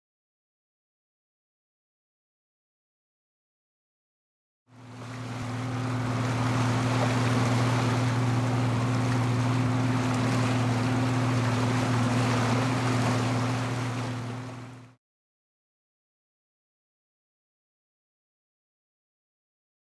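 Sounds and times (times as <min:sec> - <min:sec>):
boat engine droning: 0:04.7 - 0:15.0
water wash: 0:04.8 - 0:15.0.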